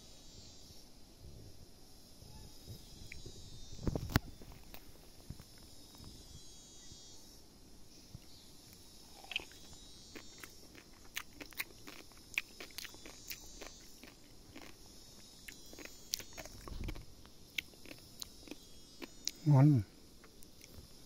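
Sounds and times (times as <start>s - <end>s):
person chewing fruit: 8.7s - 19.5s, 20.2s - 21.0s.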